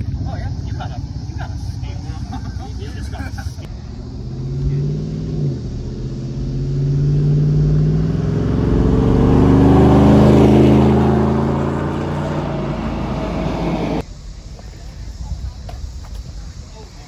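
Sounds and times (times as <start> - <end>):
pickup truck driving past: 3.7 - 14.0.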